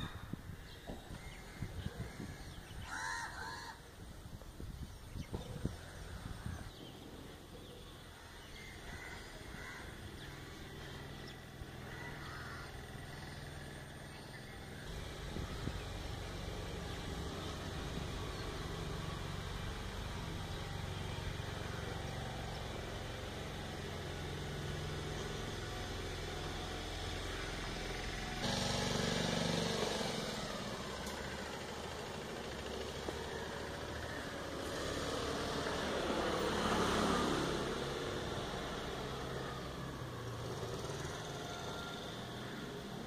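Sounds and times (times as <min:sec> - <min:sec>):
vehicle engine humming: 0:00.0 - 0:43.0.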